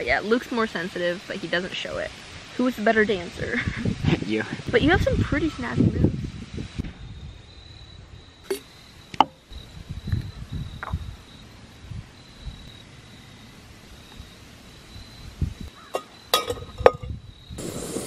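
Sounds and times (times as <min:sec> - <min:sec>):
crickets chirping: 0:00.0 - 0:18.0
metal pot clinks: 0:15.9 - 0:17.1.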